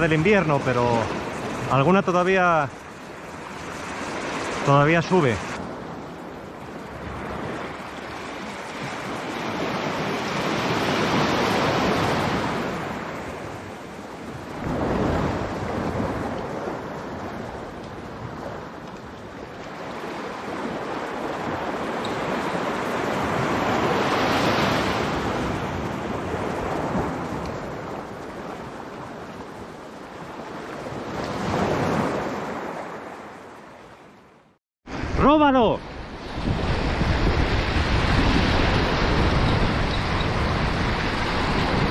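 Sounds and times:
waves washing over rocks: 0:00.0 - 0:33.2.

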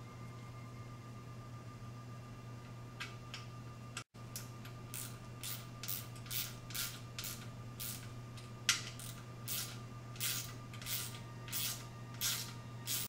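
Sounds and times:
low hum: 0:00.0 - 0:13.0
hand ratchet clicking: 0:05.0 - 0:08.1, 0:08.7 - 0:13.0.

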